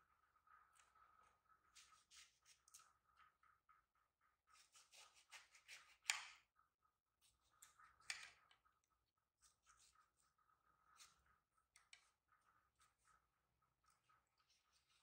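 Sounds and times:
knife scraping grapefruit peel: 4.5s - 6.4s.

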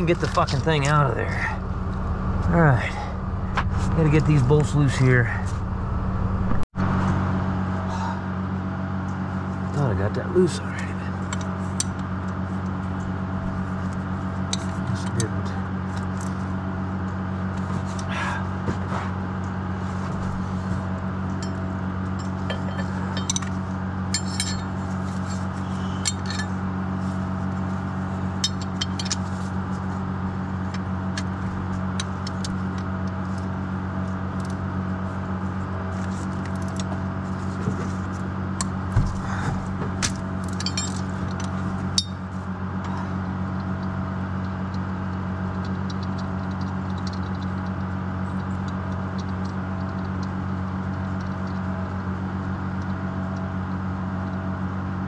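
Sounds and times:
engine droning: 0.0s - 55.0s
wrench clinking and scraping on metal: 21.4s - 26.6s, 28.4s - 29.5s, 40.0s - 42.3s.

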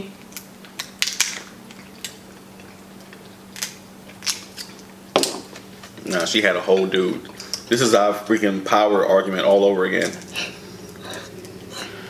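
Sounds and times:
crab shells cracking: 0.2s - 7.7s.

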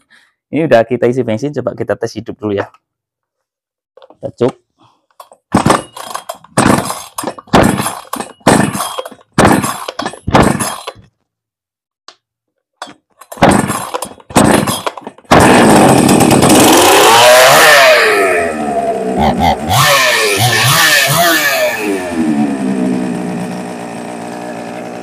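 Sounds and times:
starter cord pulls: 5.1s - 11.1s, 12.8s - 17.7s
chainsaw revving: 6.6s - 11.0s, 13.4s - 25.0s.

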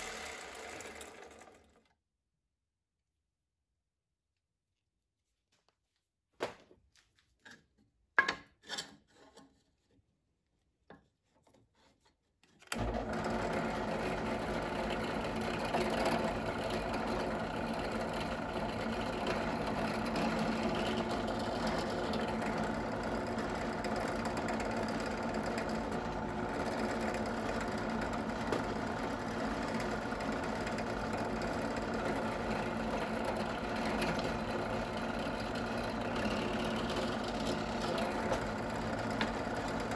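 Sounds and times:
drill press motor running: 0.0s - 1.9s, 12.7s - 39.9s.

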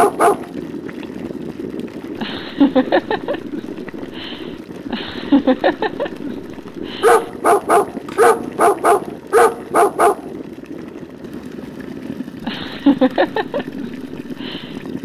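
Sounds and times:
dog barking: 0.0s - 0.5s, 7.0s - 10.3s.

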